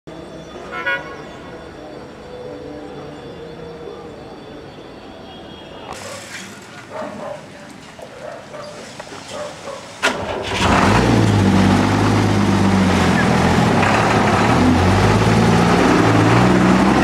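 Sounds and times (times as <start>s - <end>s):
truck engine running loudly: 10.0s - 17.0s.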